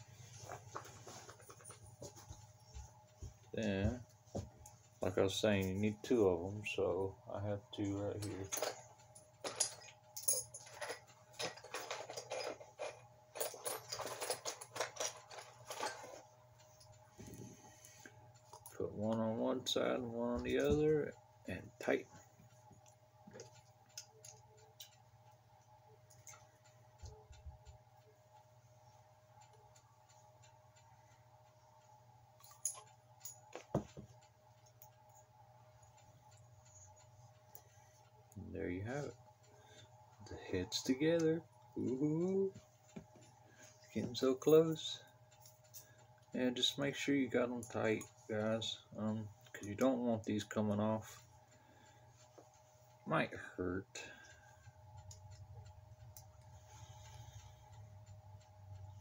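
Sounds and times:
steady low hum: 0.0s - 59.0s
metal tools clinking and rattling: 8.2s - 16.2s.

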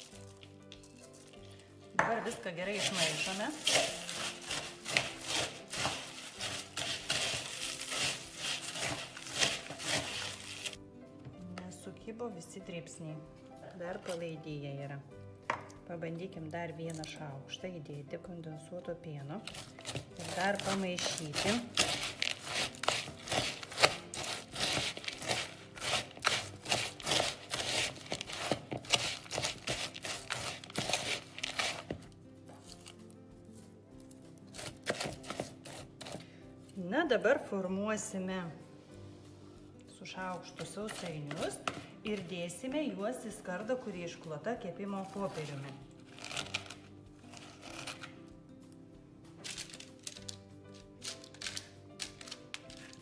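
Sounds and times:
spoon stirring cornflakes in bowl: 2.3s - 10.8s, 19.5s - 32.8s, 34.5s - 36.2s, 40.6s - 41.8s.

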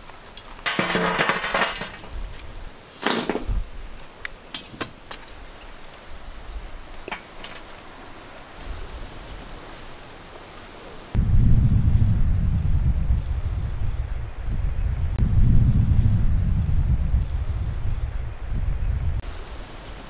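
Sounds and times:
charcoal clinking on metal: 0.4s - 2.2s, 4.5s - 5.3s.

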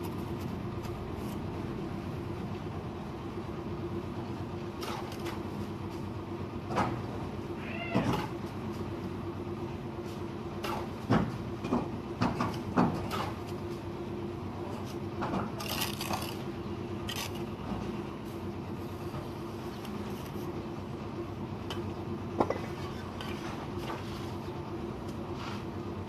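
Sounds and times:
bricks and trowel clinking: 15.5s - 17.5s.

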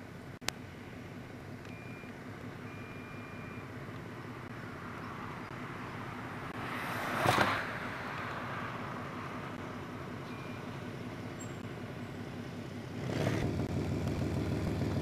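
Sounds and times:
car passing at speed: 4.8s - 9.7s
diesel locomotive running: 8.8s - 15.0s.

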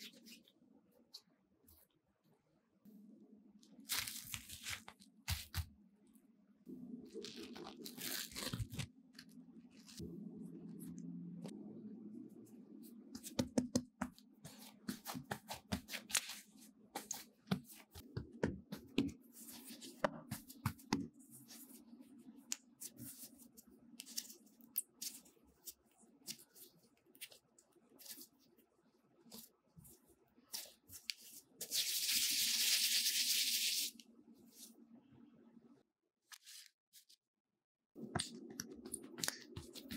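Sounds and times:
hands patting and rubbing dough: 3.7s - 5.7s, 12.9s - 28.4s, 38.0s - 39.9s.

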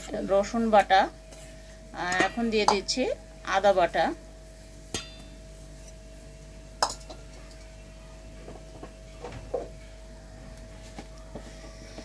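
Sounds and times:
steady faint hum: 0.0s - 12.0s.

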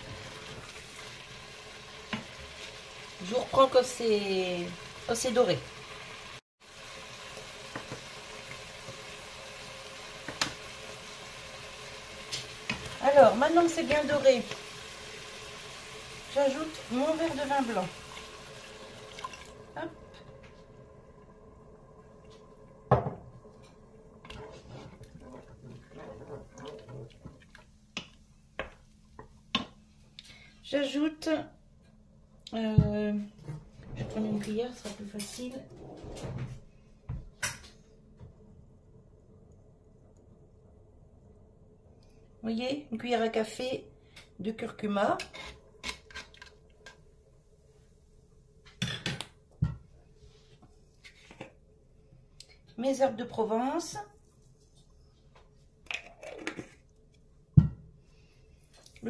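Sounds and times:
wet scraping and stirring: 22.2s - 30.3s, 45.2s - 47.1s, 54.1s - 57.4s.

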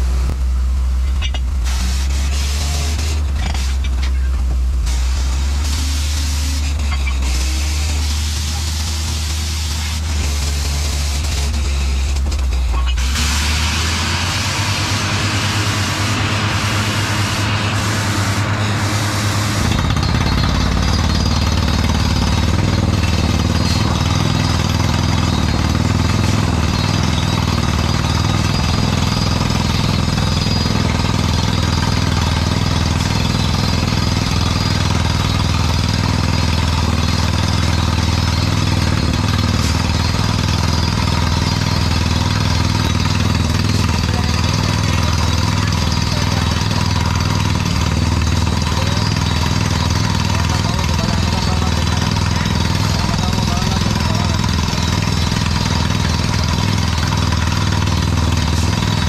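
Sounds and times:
low engine drone: 0.0s - 59.0s
drilling rig rapid hammering: 1.0s - 59.0s
compressed air blowing: 1.6s - 4.0s, 4.8s - 12.1s, 13.0s - 27.2s.

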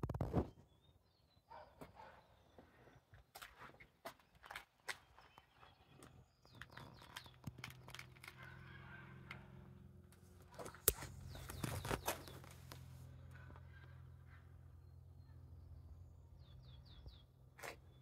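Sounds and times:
bird chirps: 4.8s - 9.7s, 10.4s - 18.0s.

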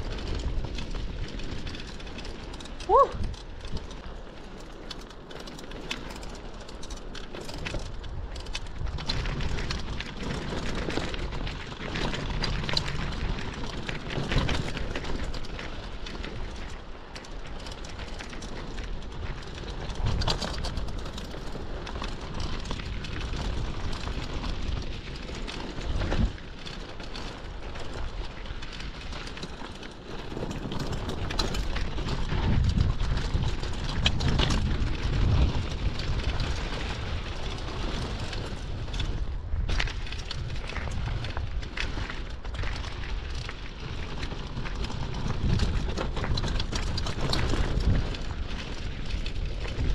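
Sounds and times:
wind rushing over microphone: 0.0s - 4.2s, 30.2s - 49.9s
bike rattling and knocking: 0.0s - 49.9s.

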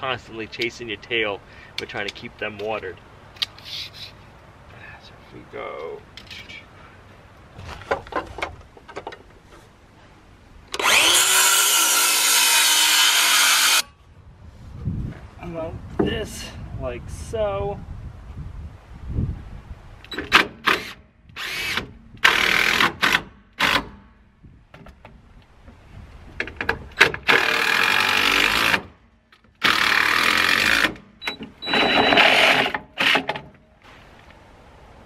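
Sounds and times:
cordless drill driving screws: 10.8s - 13.8s, 20.1s - 23.8s, 27.3s - 28.8s, 29.6s - 30.9s, 31.6s - 33.3s.

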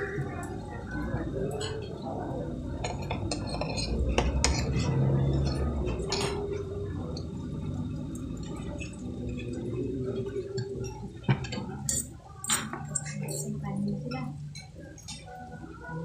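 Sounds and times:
low background murmur: 0.0s - 16.0s
cutlery clinking on plates: 2.8s - 6.6s, 10.8s - 13.6s.

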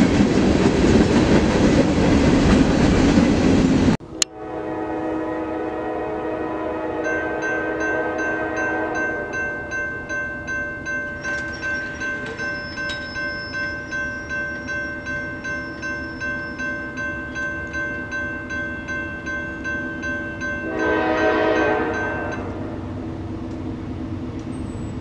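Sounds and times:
train horn blowing: 4.0s - 9.4s, 20.5s - 22.9s
crossing warning bell ringing: 6.7s - 23.1s.

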